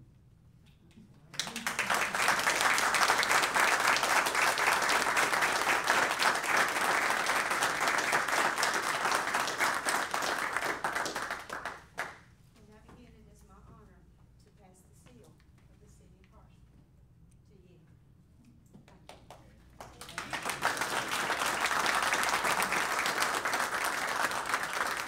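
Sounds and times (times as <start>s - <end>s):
audience applauding: 1.4s - 12.2s, 19.8s - 25.0s.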